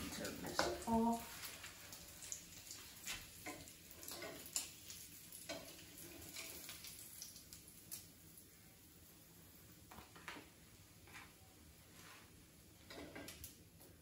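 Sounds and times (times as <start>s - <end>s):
bacon sizzling in pan: 0.0s - 10.6s.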